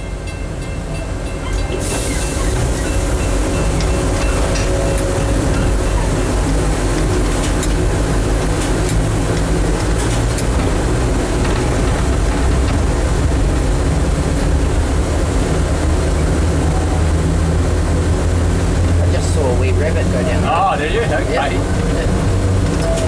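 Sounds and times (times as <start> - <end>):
locomotive rumble on rails: 0.0 - 23.0.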